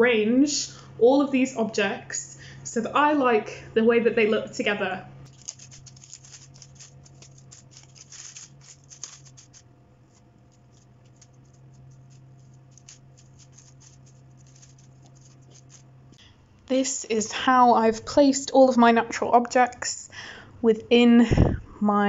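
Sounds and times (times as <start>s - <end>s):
faint low steady hum: 0.0s - 22.0s
dry leaves crackling and rustling: 5.3s - 15.9s.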